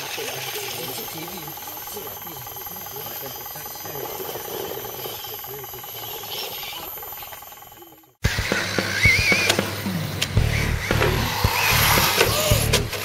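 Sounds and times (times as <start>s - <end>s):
high thin insect whine: 0.0s - 8.2s.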